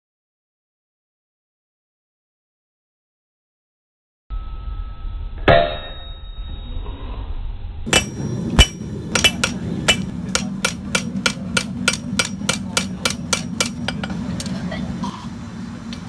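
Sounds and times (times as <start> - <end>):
low hum: 4.3 - 16.0
hammer striking metal on anvil: 5.4 - 6.3, 7.9 - 14.2.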